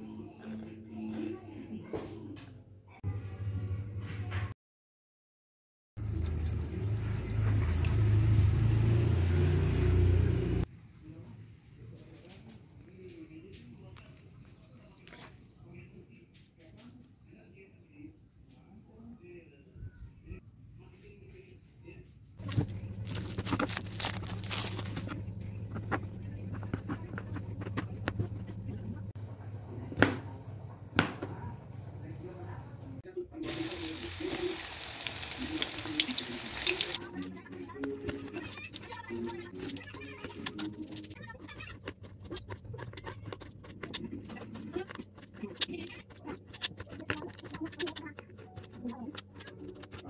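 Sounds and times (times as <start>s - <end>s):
steady low hum: 22.4s - 33.0s.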